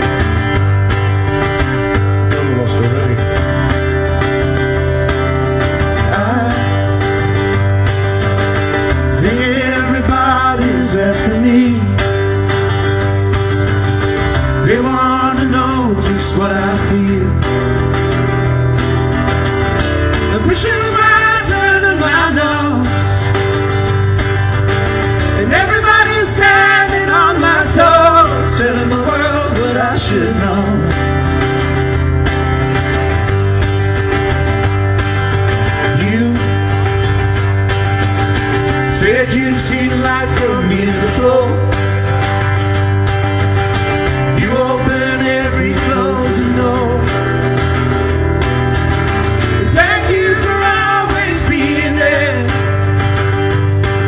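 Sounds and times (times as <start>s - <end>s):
acoustic guitar strumming: 0.0s - 54.0s
man singing: 5.9s - 7.3s, 8.9s - 12.4s, 14.6s - 17.7s, 20.2s - 23.4s, 25.3s - 31.2s, 35.7s - 37.0s, 38.7s - 42.0s, 44.2s - 47.4s, 49.6s - 52.9s.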